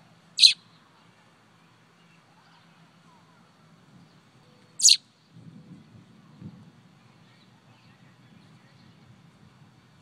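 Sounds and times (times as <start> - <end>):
bird chirp: 0.4 - 0.9, 4.0 - 5.3.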